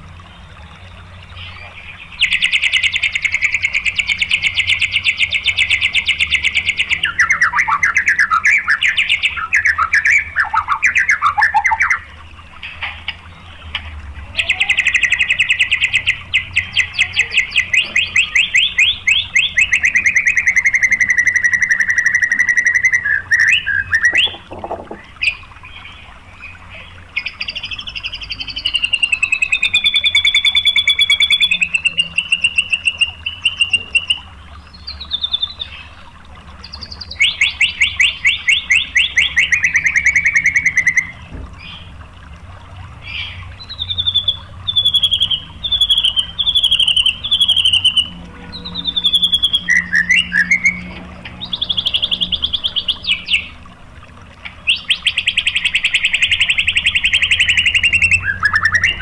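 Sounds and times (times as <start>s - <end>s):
long wavering bird whistle: 14.4s - 24.4s, 28.5s - 34.2s, 37.0s - 41.2s, 43.2s - 53.6s, 54.6s - 59.0s.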